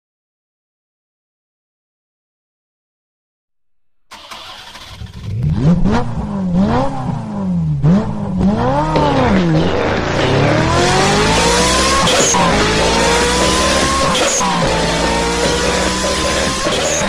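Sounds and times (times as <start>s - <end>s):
motor revving: 7.9s - 17.0s.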